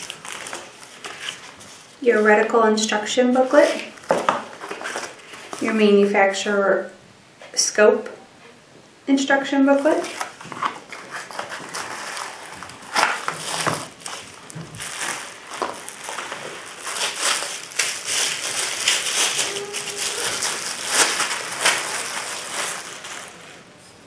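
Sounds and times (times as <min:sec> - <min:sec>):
plastic bag crinkling: 0:00.0 - 0:02.5, 0:03.5 - 0:06.1, 0:09.7 - 0:23.7.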